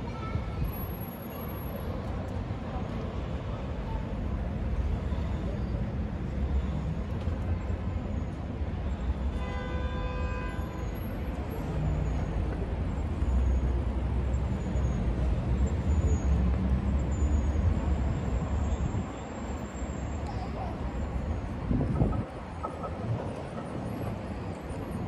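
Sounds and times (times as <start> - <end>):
distant traffic rumble: 11.0 - 25.0.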